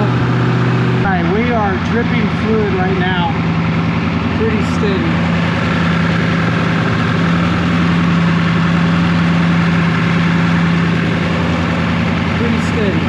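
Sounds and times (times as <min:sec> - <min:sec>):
truck engine idling: 0:00.0 - 0:13.0.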